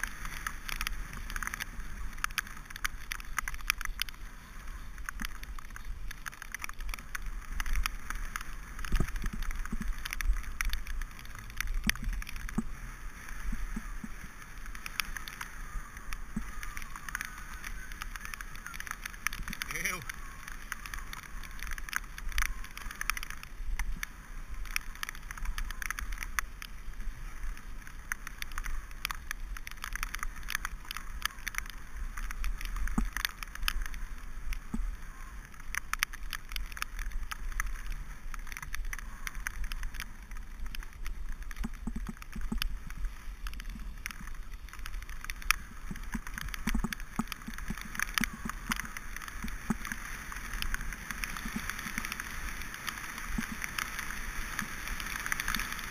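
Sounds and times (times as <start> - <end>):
bike rattling over bumps: 0.0 - 55.9
bike tyres crackling on wet gravel: 0.0 - 55.9
low wind rumble on microphone: 0.0 - 55.9.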